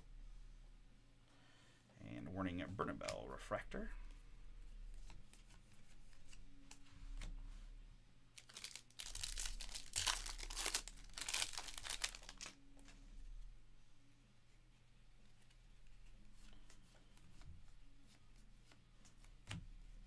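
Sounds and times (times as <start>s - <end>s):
cards being handled: 4.9s - 7.4s, 8.4s - 13.0s
plastic wrapper crinkling and tearing: 8.4s - 12.6s.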